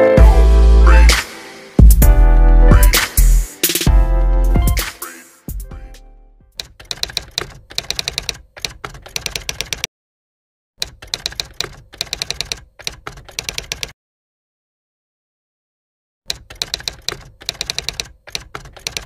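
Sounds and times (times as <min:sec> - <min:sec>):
typewriter key clacks: 0:06.6 - 0:09.9, 0:10.8 - 0:13.9, 0:16.3 - 0:19.0.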